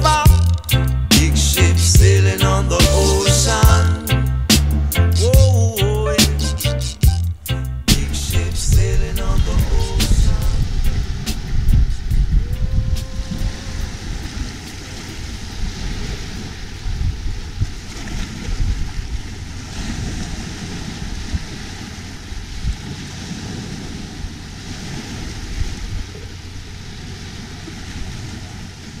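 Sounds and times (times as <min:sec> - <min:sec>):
wind buffeting microphone: 0:07.8 - 0:29.0
small waves washing on sand: 0:09.7 - 0:29.0.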